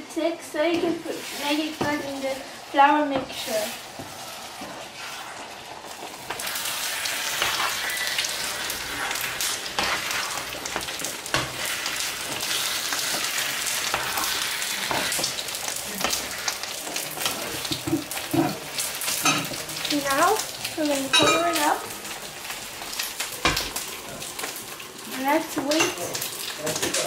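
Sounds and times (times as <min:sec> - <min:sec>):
food sizzling in a frying pan: 0:00.0 - 0:27.0
metal spoon scraping a pan: 0:00.7 - 0:05.6, 0:06.2 - 0:15.4.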